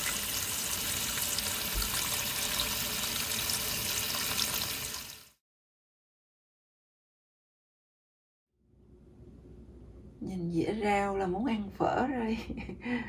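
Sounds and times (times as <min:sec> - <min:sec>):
tap water splashing into bowl: 0:01.7 - 0:02.7.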